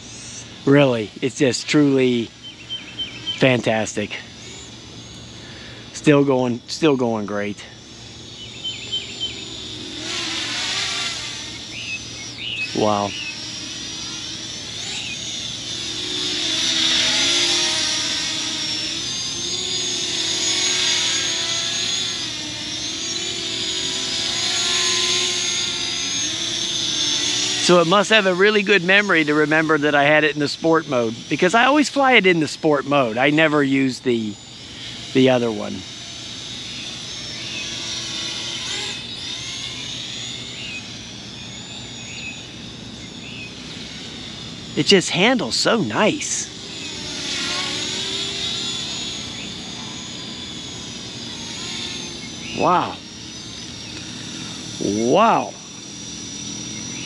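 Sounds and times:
drone propellers whining: 0.0s - 57.0s.

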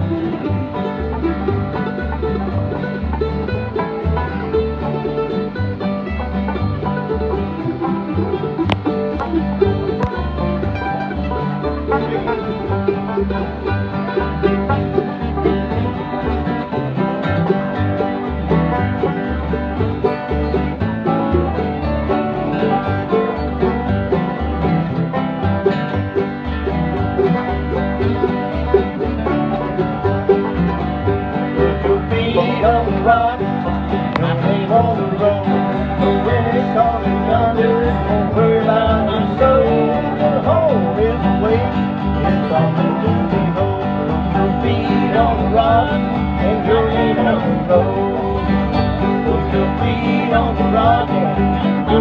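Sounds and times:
acoustic guitars picking: 0.0s - 52.0s
banjo: 0.0s - 52.0s
bass beat: 0.0s - 52.0s
mandolin: 0.0s - 52.0s.

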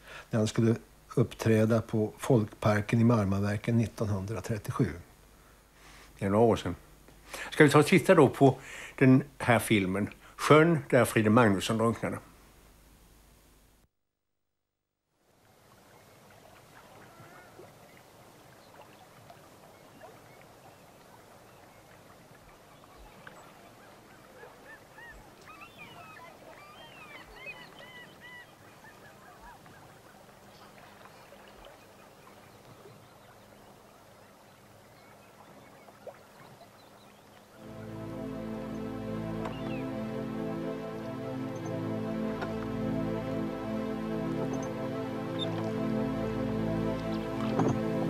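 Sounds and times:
outdoor hiss: 0.0s - 13.9s
water birds calling: 15.4s - 48.0s.

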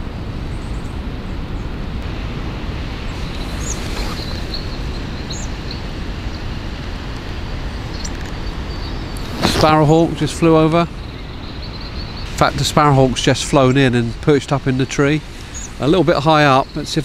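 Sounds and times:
wind on microphone: 0.0s - 17.0s
faint bird chirps: 3.1s - 6.5s, 7.8s - 12.5s, 15.3s - 16.9s.

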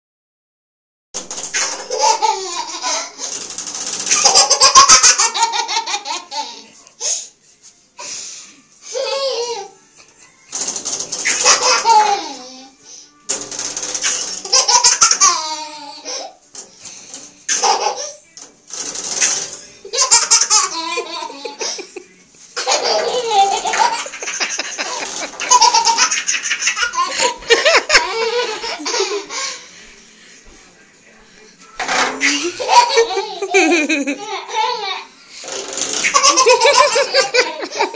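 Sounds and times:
toddler laughing: 1.9s - 3.2s, 4.1s - 6.7s, 11.2s - 12.6s, 14.4s - 16.3s, 22.6s - 29.5s, 32.2s - 35.1s, 36.0s - 37.9s.

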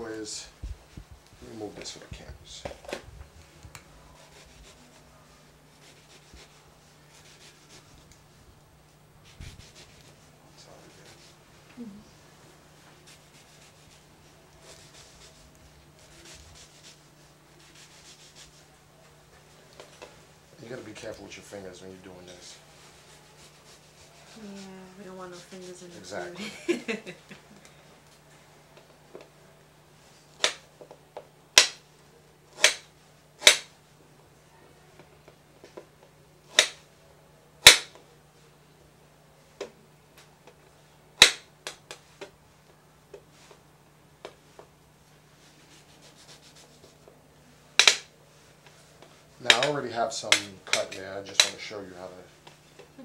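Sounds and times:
knife striking plastic board: 33.4s - 33.7s, 37.7s - 37.9s.

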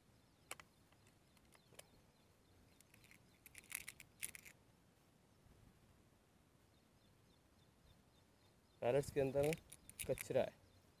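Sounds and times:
air rifle clicks and rattles: 2.8s - 4.6s, 9.3s - 10.4s.

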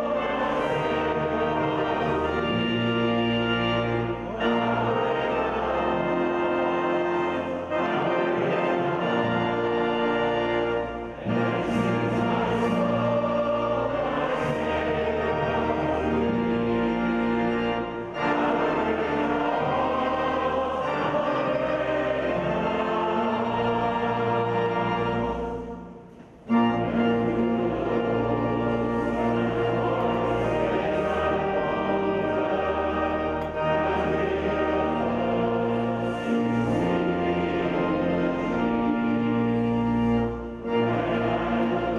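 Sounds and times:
congregation singing a hymn: 0.0s - 41.9s
organ: 0.0s - 41.9s.

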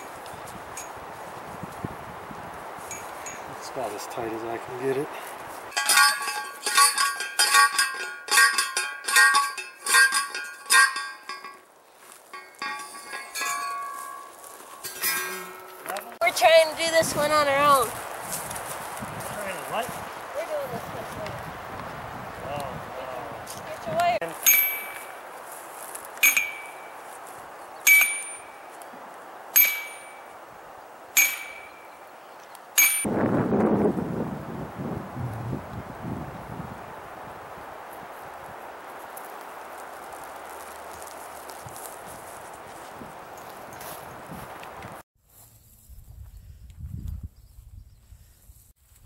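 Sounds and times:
post driver clanging on metal: 5.7s - 11.6s, 12.3s - 16.0s, 26.2s - 26.8s, 27.9s - 28.5s, 29.6s - 30.2s, 31.2s - 31.8s.

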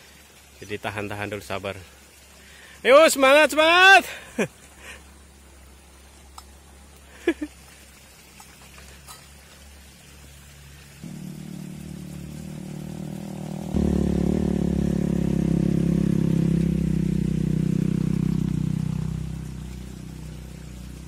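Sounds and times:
motor engine running: 11.0s - 21.0s.

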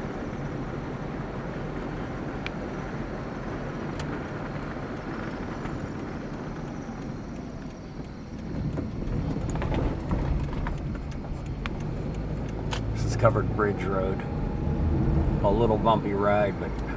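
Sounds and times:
car road noise rumble: 0.0s - 16.9s.

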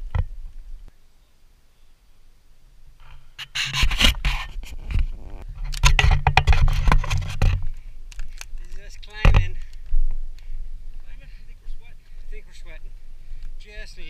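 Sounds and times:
camera handling scraping: 3.1s - 8.6s.

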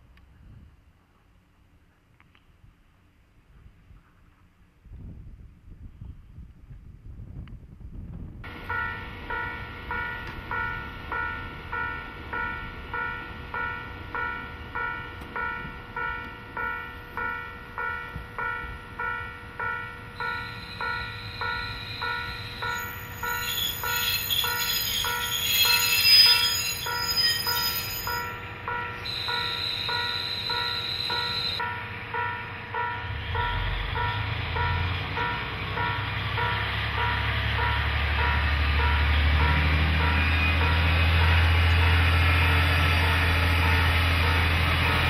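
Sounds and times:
diesel railcar passing: 8.4s - 45.0s
level crossing warning bell: 8.5s - 42.1s
train wheels squealing: 20.2s - 31.6s.

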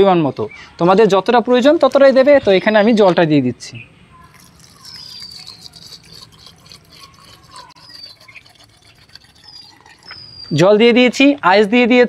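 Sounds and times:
water pouring into metal jar: 4.2s - 10.6s.

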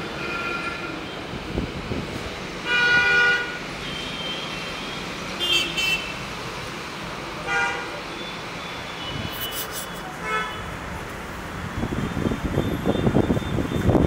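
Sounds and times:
steady traffic hum: 0.0s - 14.0s
vehicle horns honking: 2.7s - 4.5s, 5.4s - 6.2s, 9.0s - 10.7s.

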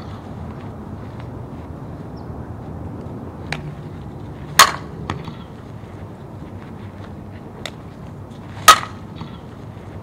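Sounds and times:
bat hitting ball crack: 4.5s - 5.6s, 8.6s - 9.4s.

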